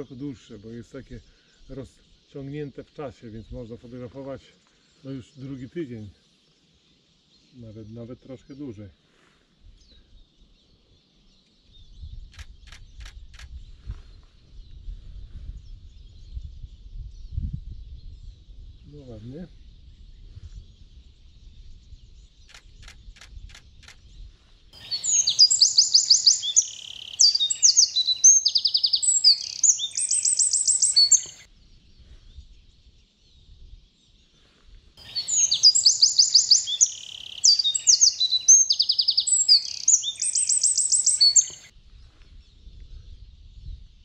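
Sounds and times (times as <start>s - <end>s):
songbird singing trills: 9.8s - 34.2s, 35.0s - 44.0s
short high bird ticks: 12.3s - 13.6s, 22.5s - 24.0s, 25.3s - 31.5s.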